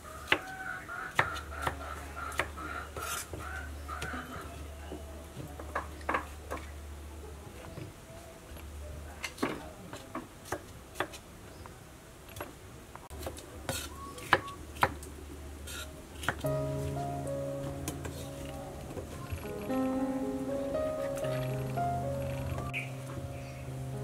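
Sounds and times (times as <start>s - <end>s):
low steady hum: 16.4s - 24.0s.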